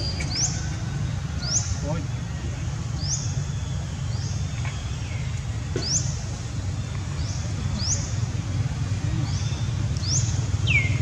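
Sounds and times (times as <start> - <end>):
bird chirping: 9.2 - 11.0.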